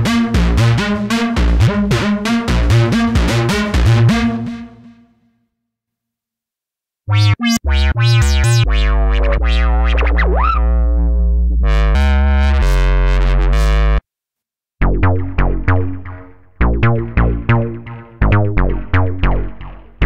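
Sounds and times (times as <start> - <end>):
synthesizer bass notes: 0.0 - 4.9, 7.1 - 14.0, 14.8 - 20.0
synthesizer plucked notes: 7.1 - 14.0, 14.8 - 20.0.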